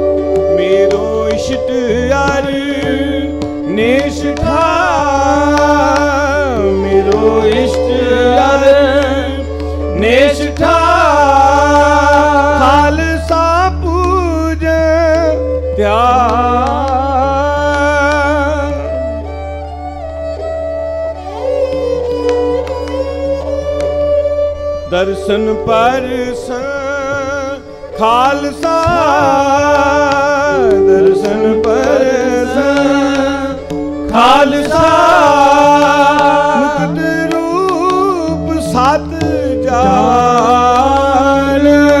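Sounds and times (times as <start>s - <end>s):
tabla strokes: 0.0s - 19.4s, 20.4s - 42.0s
bowed string melody: 0.0s - 42.0s
drone notes: 39.6s - 41.6s.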